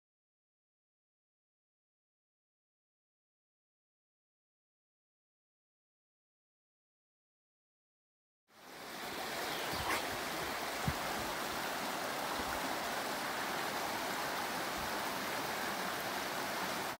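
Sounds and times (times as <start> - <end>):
stream running over rocks: 8.5 - 17.0.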